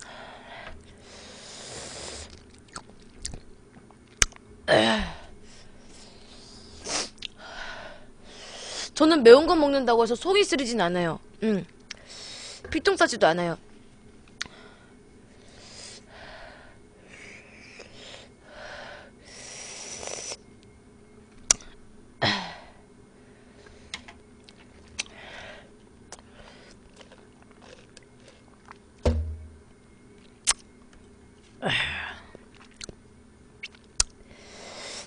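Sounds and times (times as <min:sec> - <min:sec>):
soft chewing: 0:02.3 - 0:04.4, 0:24.4 - 0:25.1, 0:25.8 - 0:28.9, 0:32.3 - 0:33.0
low thump: 0:29.0 - 0:29.6.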